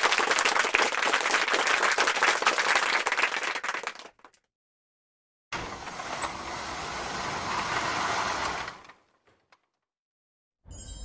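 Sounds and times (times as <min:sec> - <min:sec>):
applause: 0:00.0 - 0:04.5.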